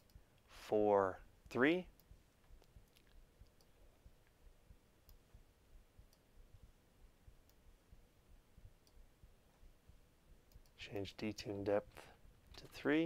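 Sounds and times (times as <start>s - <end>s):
faint steady hum: 0.0s - 13.0s
computer mouse clicks: 10.5s - 10.8s.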